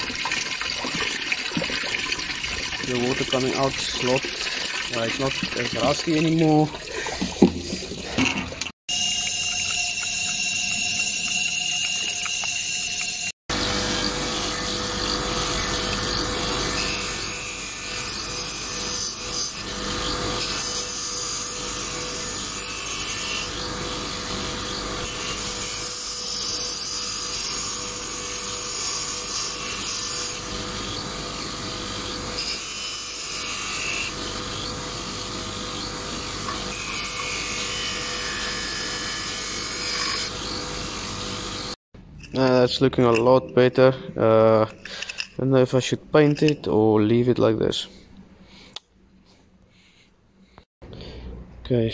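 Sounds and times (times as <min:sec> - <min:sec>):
water running out of outlet: 0:00.0 - 0:08.8.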